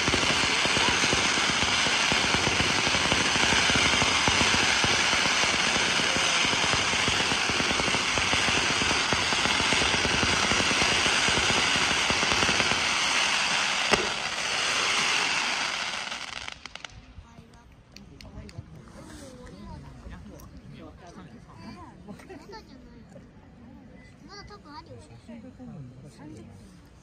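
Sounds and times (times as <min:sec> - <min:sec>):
sharp firework bang: 0:00.0 - 0:15.6
fireworks crackling and bursting: 0:00.0 - 0:17.2.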